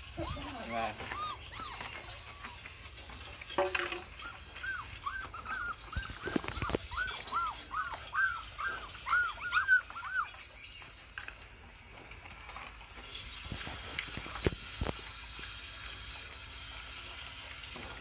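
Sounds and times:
puppy whimpering: 0.0 - 3.1, 3.8 - 11.3.

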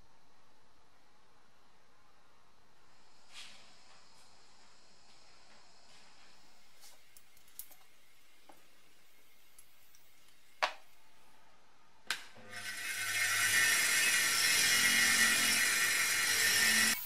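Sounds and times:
bench grinder motor whirring: 12.4 - 17.0.

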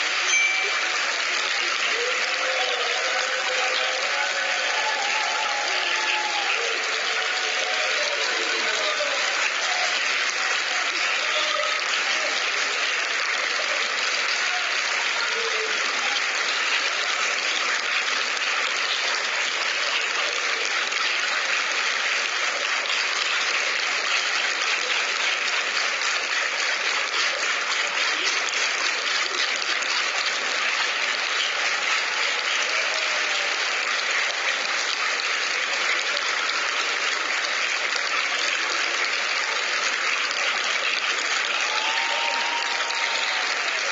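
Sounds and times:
faint voices: 0.0 - 21.0
audience applauding: 0.0 - 43.9.

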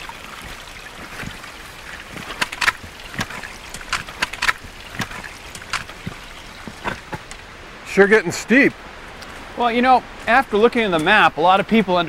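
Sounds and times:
boots stepping on wet rocks: 0.0 - 7.3
trekking poles striking stones: 0.4 - 7.4.

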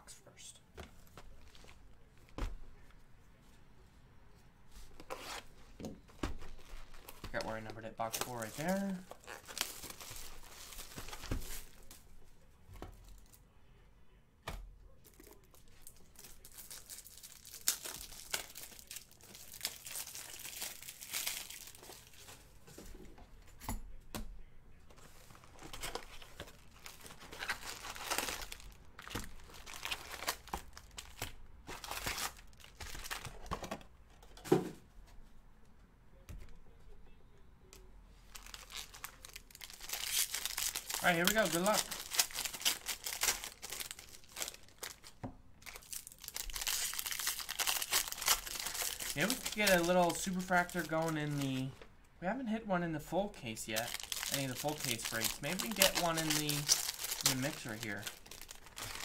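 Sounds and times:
plastic wrapping crinkling and tearing: 6.4 - 12.0, 15.0 - 22.4, 25.4 - 33.5, 38.3 - 51.8, 53.7 - 59.0.

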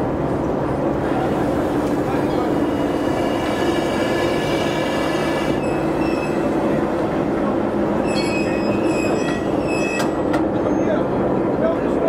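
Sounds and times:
train wheels squealing on rails: 2.6 - 7.3, 7.9 - 11.2.

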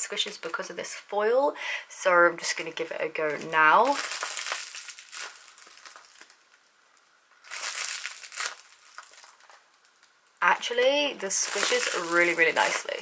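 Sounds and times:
foil crinkling: 3.2 - 13.0.

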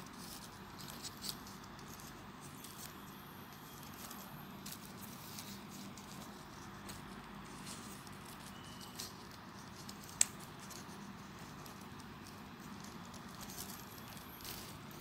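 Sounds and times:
paper rustling: 0.0 - 15.0
folded paper clicking: 3.7 - 15.0.

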